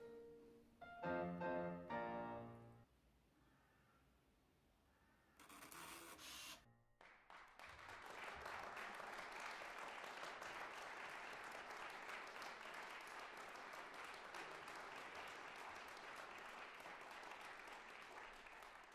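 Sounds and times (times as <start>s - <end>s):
many hands clapping: 7.0s - 18.9s.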